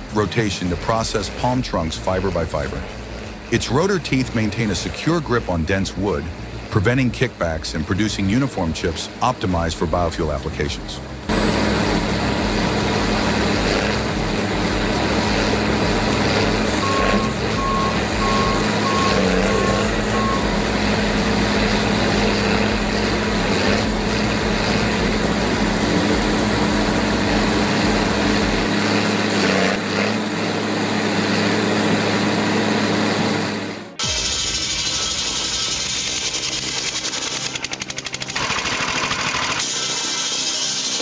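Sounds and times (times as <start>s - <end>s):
shredder machine drone: 0.0s - 41.0s
warning alarm beeps: 16.7s - 21.3s.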